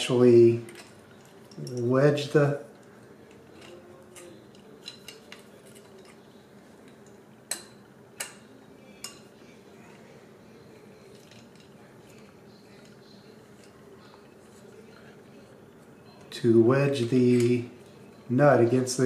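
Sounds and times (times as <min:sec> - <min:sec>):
small metal tools clinking: 0:00.4 - 0:09.3, 0:11.0 - 0:15.0.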